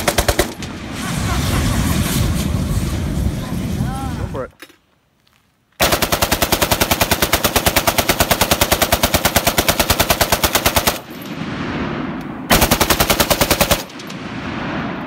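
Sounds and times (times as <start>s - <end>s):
machine gun firing: 0.0s - 0.7s, 5.8s - 11.3s, 12.5s - 14.8s
rolling echo of gunfire: 0.0s - 0.8s, 5.8s - 15.0s.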